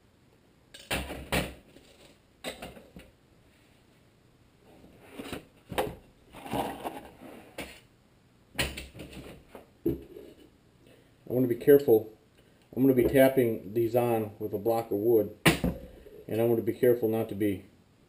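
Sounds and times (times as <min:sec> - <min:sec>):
wooden block thud: 0:15.4 - 0:15.9.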